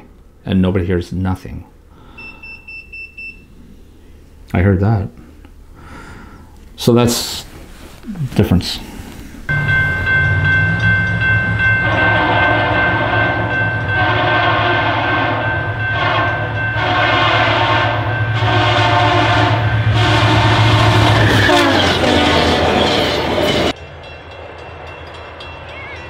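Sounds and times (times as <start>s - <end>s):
diesel engine hum: 9.5s - 13.5s
train wheels clattering: 9.5s - 14.8s, 20.7s - 26.0s
train air horn blasts: 11.8s - 22.8s.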